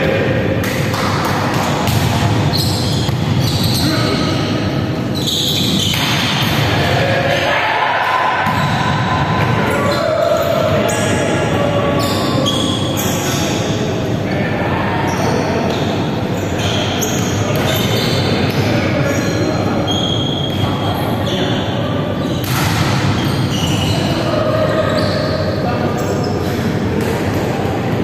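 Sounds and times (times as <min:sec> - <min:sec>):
sneakers squeaking on wooden court: 0:01.6 - 0:04.4, 0:05.1 - 0:06.5, 0:15.1 - 0:21.5, 0:22.2 - 0:24.2.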